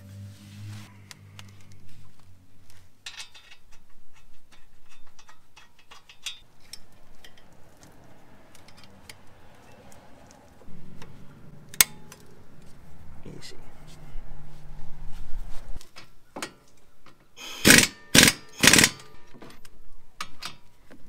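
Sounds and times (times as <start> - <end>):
metal brake parts clicking: 3.0 - 11.1.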